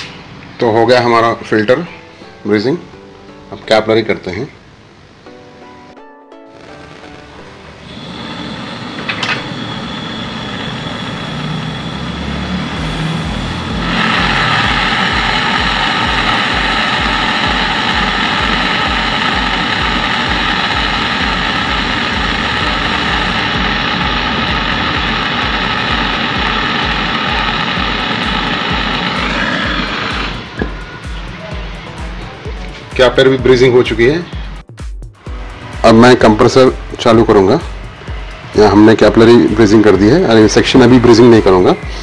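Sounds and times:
torch flame hissing: 0:06.5 - 0:32.2.

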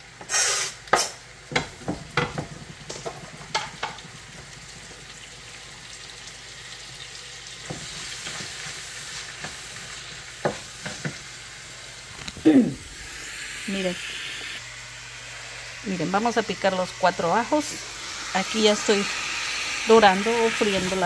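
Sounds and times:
food sizzling in a pan: 0:00.0 - 0:21.0
spoon knocking against pan: 0:01.5 - 0:04.4.

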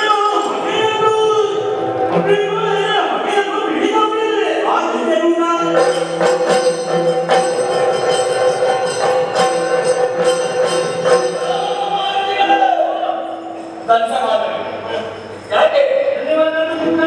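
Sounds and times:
small cymbals or bells struck: 0:05.8 - 0:11.9.

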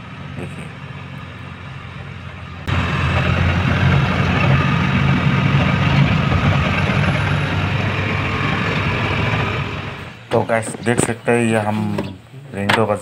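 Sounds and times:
truck engine droning: 0:00.0 - 0:12.2
rushing noise: 0:02.6 - 0:10.3.

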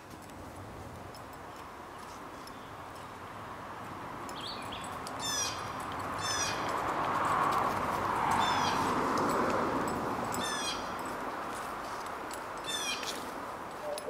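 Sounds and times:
songbird singing: 0:01.4 - 0:03.2, 0:04.2 - 0:07.2, 0:08.2 - 0:09.3, 0:09.9 - 0:11.2, 0:12.0 - 0:14.0.

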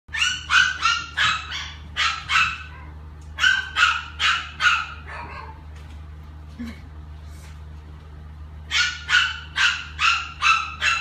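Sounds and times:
small dog yapping: 0:00.1 - 0:05.6, 0:08.7 - 0:11.0.

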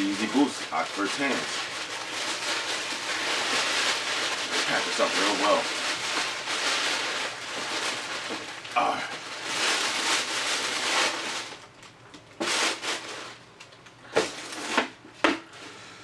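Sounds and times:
tissue paper and box rustling: 0:00.0 - 0:11.7, 0:12.4 - 0:13.4.

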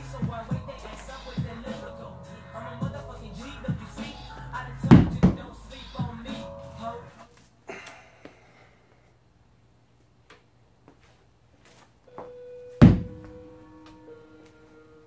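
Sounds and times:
hands rubbing chalk: 0:00.8 - 0:01.9.

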